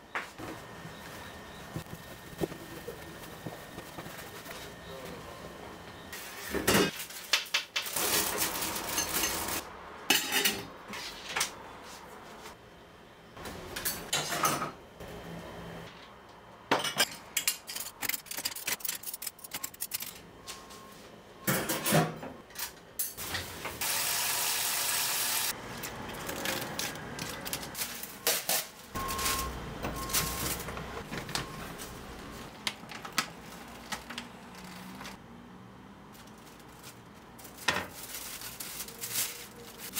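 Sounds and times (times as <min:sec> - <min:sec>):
pots and utensils clattering: 0:06.5 - 0:10.7, 0:13.8 - 0:14.8.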